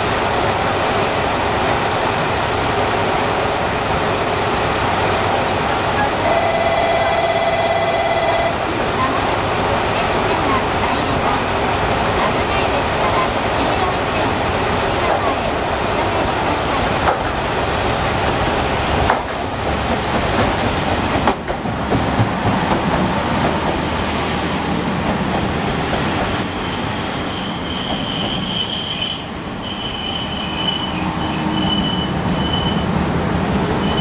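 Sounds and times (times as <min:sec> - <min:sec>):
train engine and wheels rumbling: 0:00.0 - 0:34.0
brake squeal: 0:26.2 - 0:33.0, 0:33.7 - 0:34.0.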